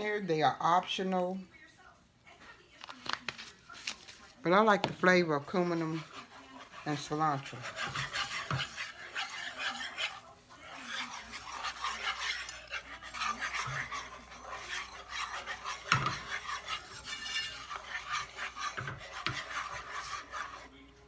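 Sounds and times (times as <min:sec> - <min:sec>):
whisk scraping a pan: 0:03.7 - 0:21.0
whisk knocking on pan: 0:04.7 - 0:20.7.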